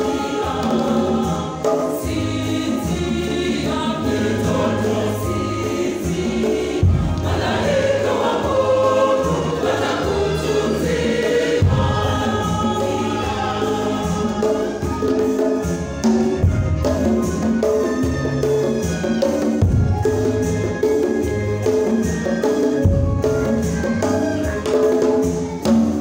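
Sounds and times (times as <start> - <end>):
choir singing a hymn: 0.0 - 17.6.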